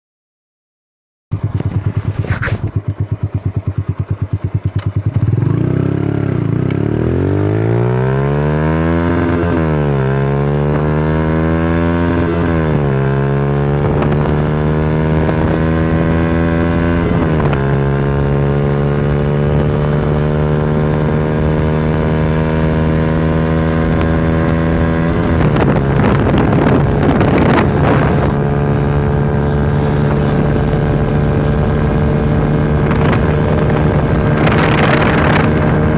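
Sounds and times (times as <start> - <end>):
motorcycle engine accelerating: 1.3 - 35.9
wind buffeting microphone: 11.9 - 35.9.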